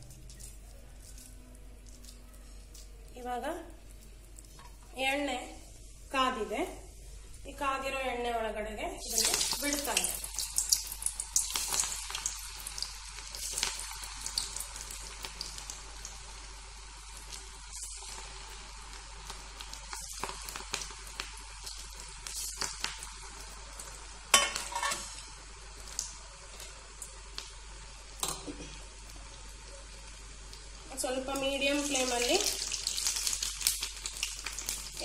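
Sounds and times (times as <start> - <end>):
fritters deep-frying in oil: 9.0 - 35.0.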